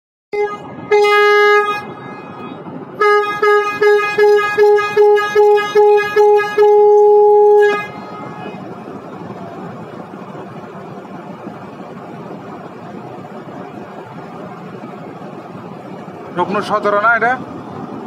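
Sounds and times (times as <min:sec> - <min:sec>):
ship's horn blasts: 0:00.3 - 0:08.8.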